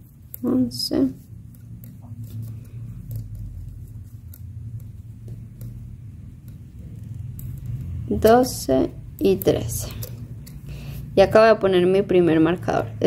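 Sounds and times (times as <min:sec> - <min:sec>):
knitting needles clicking: 0:00.0 - 0:10.8
steady low hum: 0:00.0 - 0:13.0.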